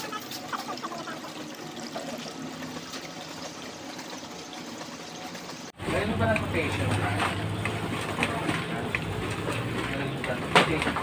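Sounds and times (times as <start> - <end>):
water trickling and splashing: 0.0 - 11.0.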